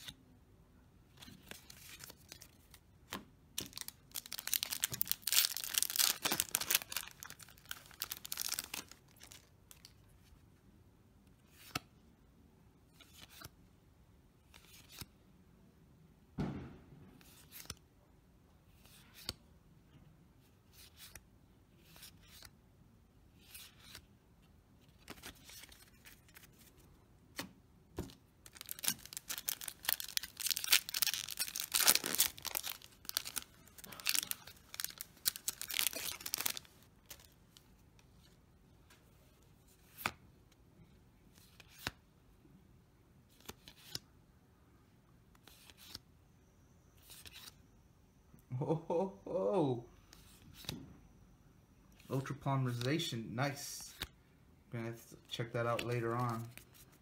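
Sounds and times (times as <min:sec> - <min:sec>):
trading cards flicking and rustling: 0:01.1 - 0:10.0, 0:14.5 - 0:15.1, 0:17.2 - 0:17.8, 0:24.8 - 0:38.3, 0:43.4 - 0:44.0, 0:55.6 - 0:57.0
foil pack crinkling and tearing: 0:03.6 - 0:09.9, 0:28.5 - 0:37.3
dull thump: 0:16.4 - 0:17.0.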